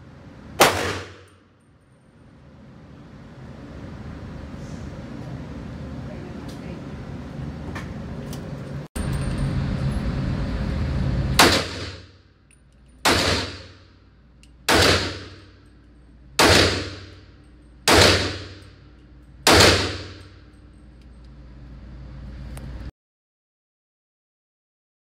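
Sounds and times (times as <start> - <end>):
handgun shots echoing indoors: 0.6 - 1.5, 11.4 - 12.2, 13.0 - 15.8, 16.4 - 18.8, 19.4 - 20.5.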